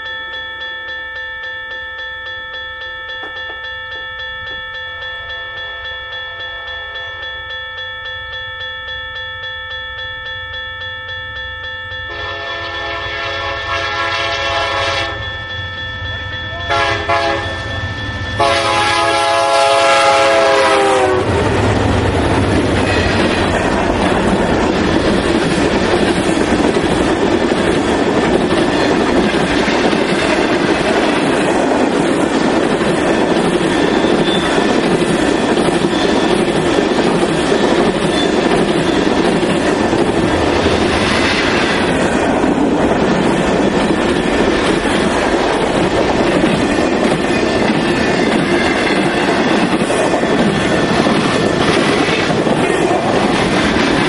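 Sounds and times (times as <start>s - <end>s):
train wheels clickety-clack: 3.1s - 3.8s, 16.5s - 54.0s
locomotive horn blasts: 12.1s - 15.3s, 16.5s - 17.7s, 18.4s - 21.6s
locomotives rumbling past: 16.0s - 54.0s.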